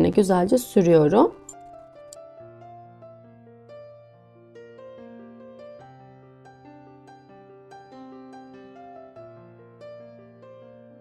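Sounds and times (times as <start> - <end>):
gentle instrumental music: 0.0 - 11.0.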